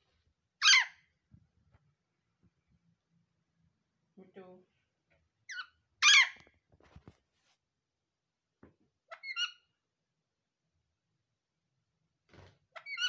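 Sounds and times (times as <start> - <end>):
parakeets squawking: 0.6 - 1.0, 5.5 - 6.4, 9.1 - 9.6.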